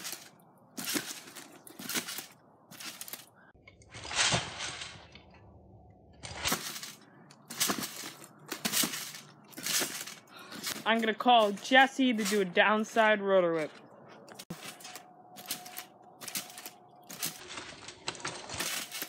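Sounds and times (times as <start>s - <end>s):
trampoline bounces with springs clattering: 0.0s - 5.4s, 6.1s - 11.2s, 14.4s - 19.0s.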